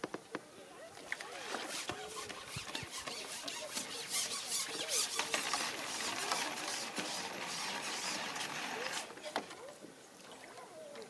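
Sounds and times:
fishing pole squeaking and scraping: 1.2 - 9.3.

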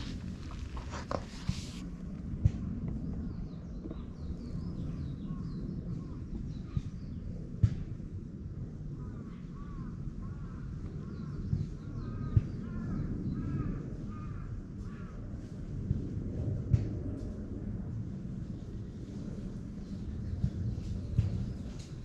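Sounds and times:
low background rumble: 0.0 - 22.0
crow cawing: 12.1 - 15.1.

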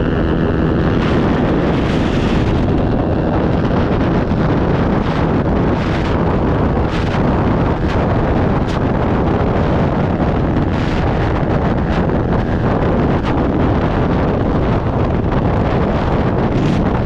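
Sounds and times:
motorcycle running noise: 0.0 - 17.0
wind rush over microphone: 0.0 - 17.0.

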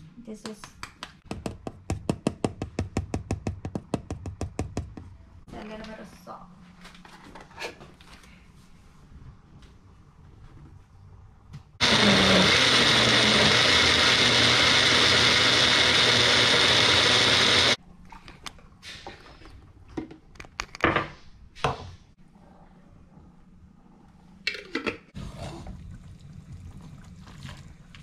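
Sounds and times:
blender motor whirring: 11.8 - 17.8.

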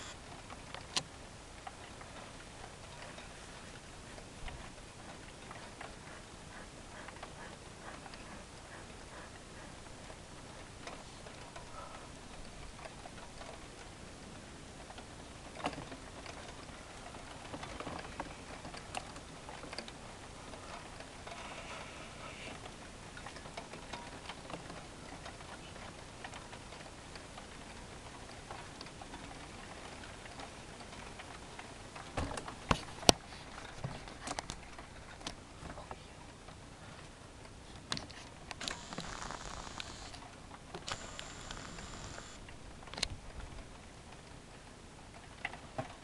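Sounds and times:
steady hiss: 0.0 - 0.4, 20.0 - 23.6, 35.4 - 43.5
low steady hiss: 0.0 - 46.0
small clicks and taps: 37.7 - 43.2.

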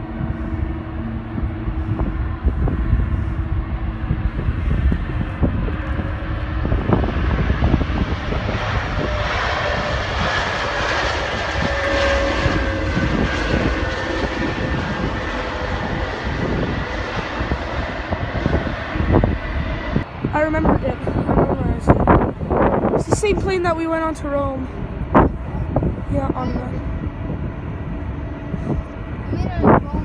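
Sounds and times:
jet engines whining: 0.0 - 30.0.

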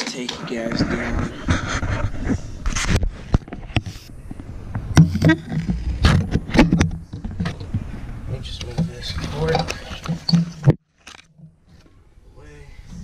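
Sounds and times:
wood knocking and scraping in glass tank: 4.8 - 10.8.

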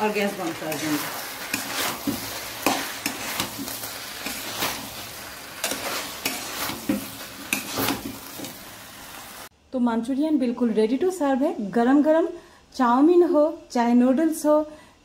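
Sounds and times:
wooden spatula scraping a pan: 0.0 - 8.8
sauce sizzling: 0.0 - 9.5.

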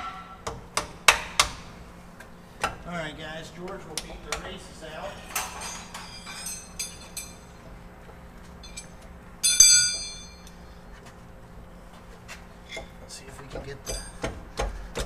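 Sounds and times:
hammer striking metal: 8.7 - 10.4.

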